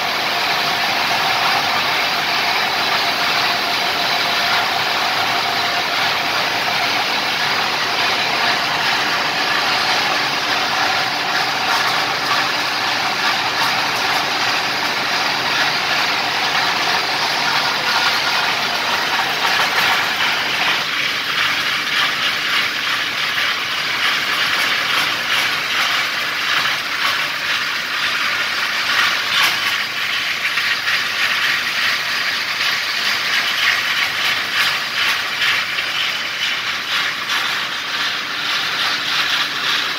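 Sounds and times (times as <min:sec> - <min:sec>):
loud steady machinery noise: 0:00.0 - 0:39.9.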